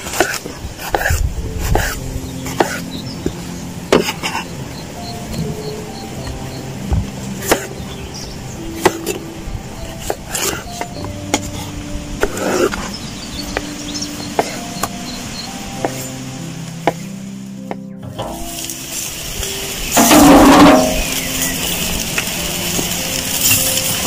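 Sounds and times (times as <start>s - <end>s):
background music with held notes: 0.0s - 24.0s
knife chopping on wooden board: 0.1s - 2.0s, 7.4s - 7.7s.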